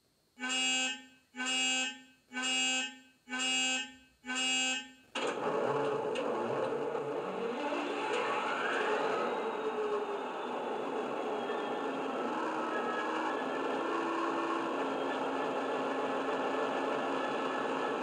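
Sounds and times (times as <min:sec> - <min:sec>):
diesel engine starting and running: 0:05.1 - 0:18.0.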